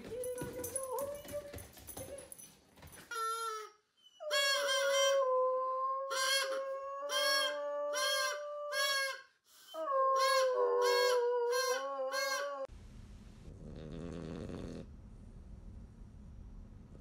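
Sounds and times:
dog howling: 9.8s - 12.7s.

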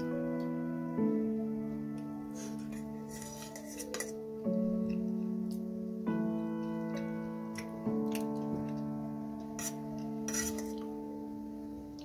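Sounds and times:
keyboard chords music: 0.0s - 12.0s
spoon scraping steel plate: 2.4s - 4.1s, 9.6s - 10.9s.

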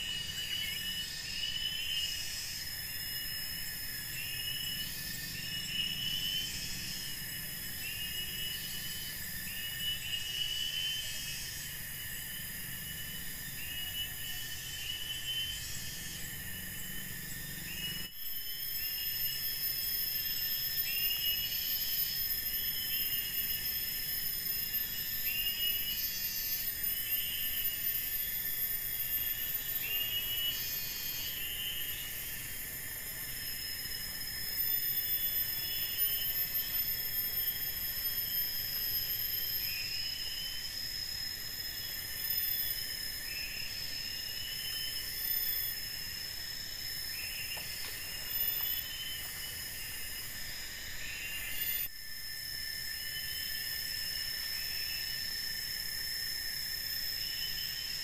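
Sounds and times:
insects droning: 0.0s - 58.0s.

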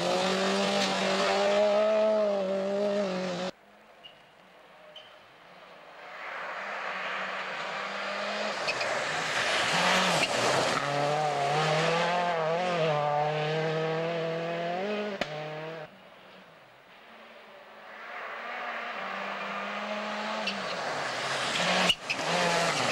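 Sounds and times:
rally car engine: 0.0s - 4.2s, 4.8s - 16.4s, 17.0s - 22.9s
tyre and snow spray rush: 6.1s - 11.8s.

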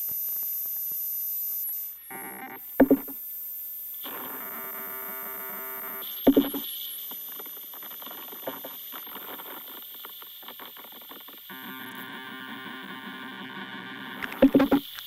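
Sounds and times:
dense crackling clicks: 7.4s - 12.0s.

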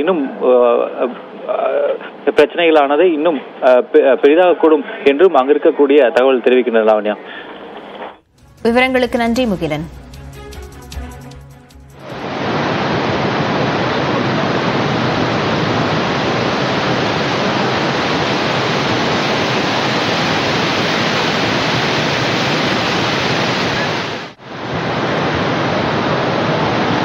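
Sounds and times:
river rushing in flood: 12.0s - 27.0s.

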